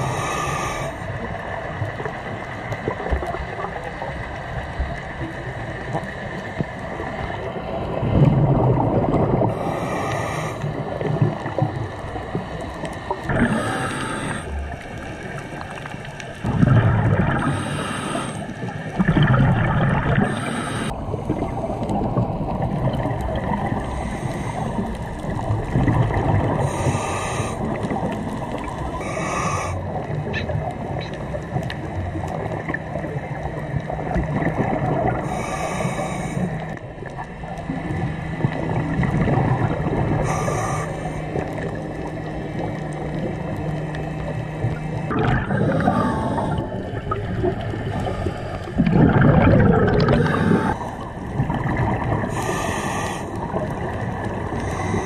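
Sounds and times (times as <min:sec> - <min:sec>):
regulator inhalation hiss: 0:00.0 - 0:01.1, 0:09.5 - 0:10.7, 0:13.4 - 0:14.6, 0:17.4 - 0:18.7, 0:20.2 - 0:20.9, 0:23.8 - 0:24.8, 0:26.6 - 0:27.6, 0:28.9 - 0:29.8, 0:35.2 - 0:36.6, 0:40.2 - 0:41.4, 0:45.7 - 0:46.8, 0:50.2 - 0:51.0, 0:52.3 - 0:53.5, 0:54.6 - 0:55.0
exhalation bubbling rumble: 0:00.0 - 0:09.9, 0:10.5 - 0:55.0.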